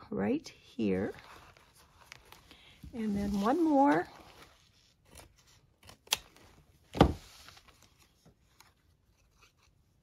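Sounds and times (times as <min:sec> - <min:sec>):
thump: 0:06.9 - 0:07.2.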